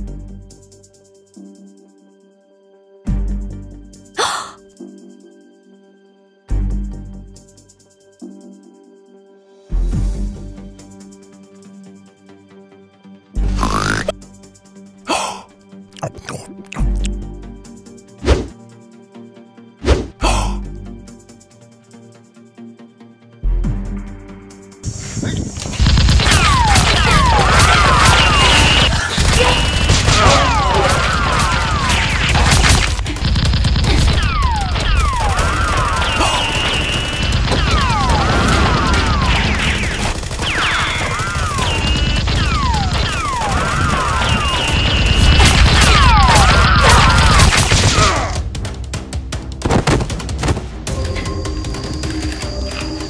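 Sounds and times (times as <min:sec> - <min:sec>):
synth action music: 0:13.4 - 0:14.8, 0:23.5 - 0:53.0
rapid gunfire: 0:25.6 - 0:48.4, 0:49.6 - 0:50.8
gunshot bursts: 0:25.7 - 0:48.3.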